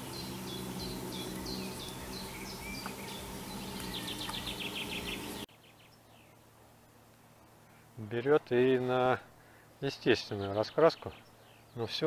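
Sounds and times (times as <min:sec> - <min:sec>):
bird trill: 0:00.0 - 0:06.4
small birds chirping: 0:00.0 - 0:06.8, 0:07.4 - 0:12.0
steady low hum: 0:00.0 - 0:10.5.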